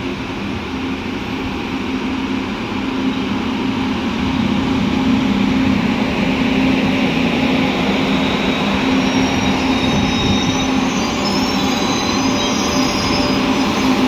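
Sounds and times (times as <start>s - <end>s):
electric train hum: 0.0s - 14.0s
train wheels rolling on rails: 0.0s - 14.0s
faint high wheel squeal: 7.4s - 14.0s.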